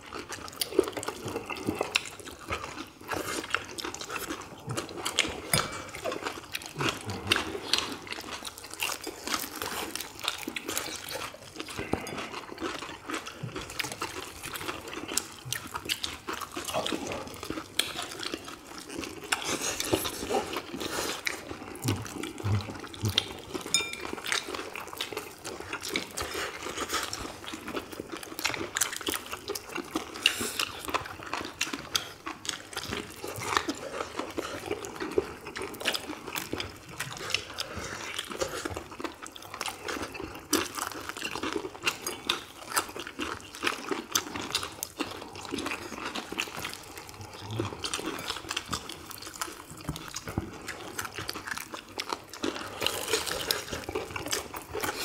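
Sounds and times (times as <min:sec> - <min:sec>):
crunchy chicken being chewed: 0:00.0 - 0:55.0.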